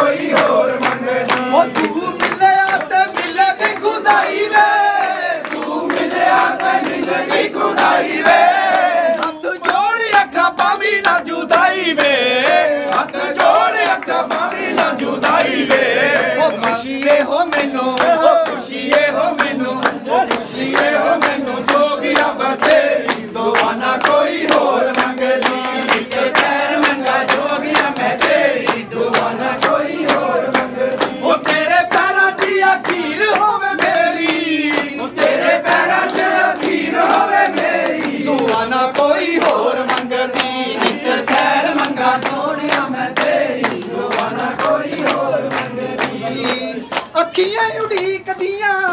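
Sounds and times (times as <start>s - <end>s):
men singing in chorus: 0.0s - 48.9s
rhythmic hand-clapping: 0.0s - 48.9s.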